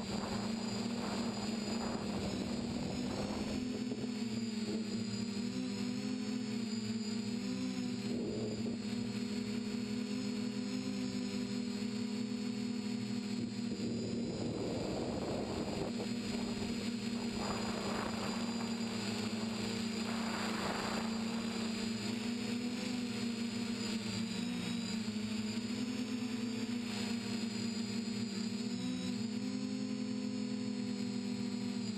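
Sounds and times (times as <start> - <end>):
drone motors buzzing: 0.0 - 31.9
rushing air: 16.4 - 21.8.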